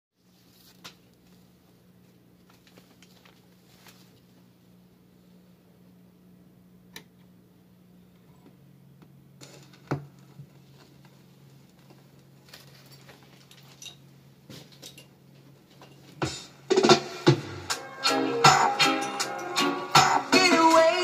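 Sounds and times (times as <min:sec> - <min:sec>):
record player hum: 0:00.2 - 0:21.0.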